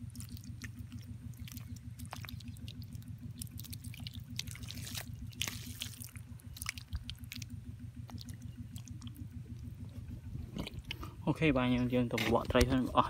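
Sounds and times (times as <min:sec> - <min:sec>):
water jet splashing on mud: 0:00.0 - 0:07.5
small water pump engine running: 0:00.0 - 0:13.0.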